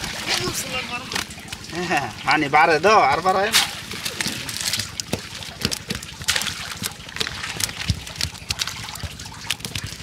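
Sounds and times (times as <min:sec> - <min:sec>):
hands sorting wet net: 0:02.9 - 0:10.0.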